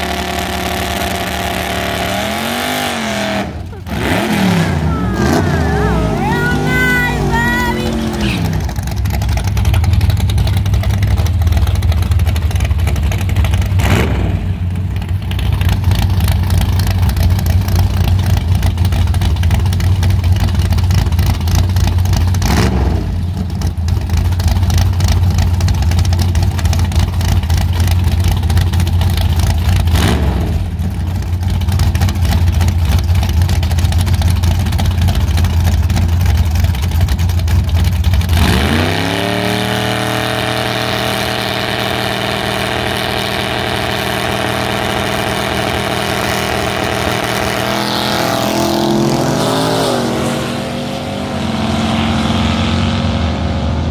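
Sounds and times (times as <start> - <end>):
engine throttle blips: 0.0 - 53.9
car engine idling heavily: 3.0 - 38.4.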